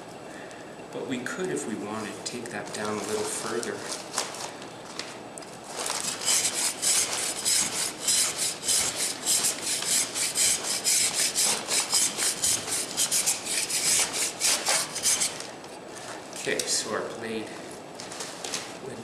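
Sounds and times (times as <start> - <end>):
rasp scraping plaster: 6.0 - 15.5.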